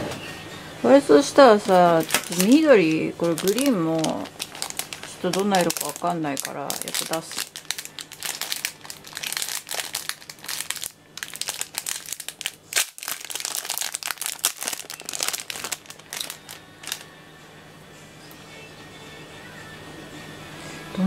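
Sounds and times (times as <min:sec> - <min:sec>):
packaging crinkling: 0:01.7 - 0:17.0.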